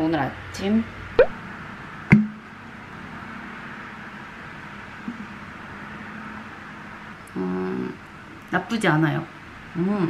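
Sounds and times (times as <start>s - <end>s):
low steady hum and hiss: 0.0s - 10.0s.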